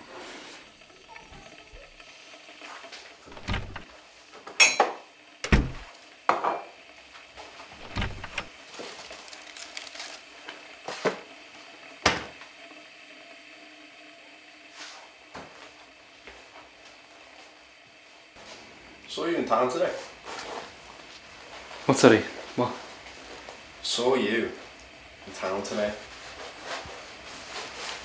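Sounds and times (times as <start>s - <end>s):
cupboard door opening: 3.3s - 3.9s, 5.4s - 5.9s, 7.8s - 8.5s.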